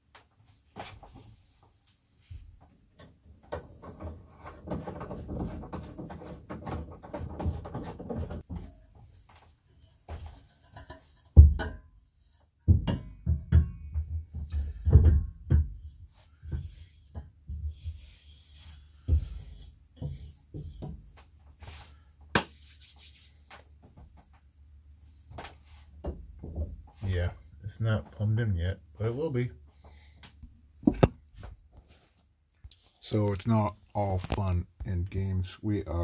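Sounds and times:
sink knocking and bumping: 11.3 - 11.8, 12.7 - 15.8.

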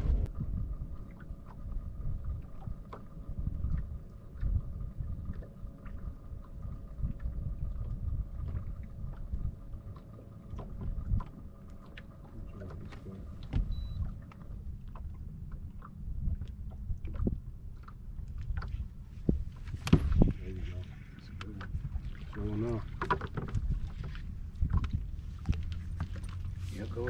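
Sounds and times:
faint steady whine: 0.0 - 16.4
water lapping against boat hull: 0.0 - 27.0
wind rumbling on microphone: 0.0 - 27.0.

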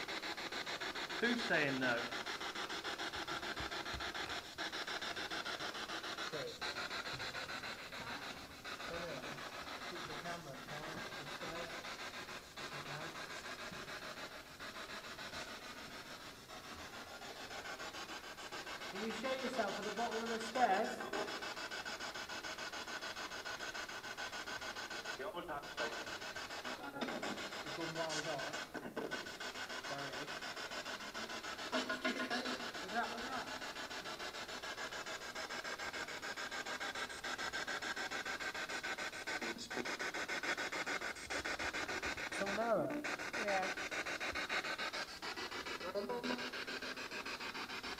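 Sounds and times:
choppy radio static: 26.8 - 29.2.

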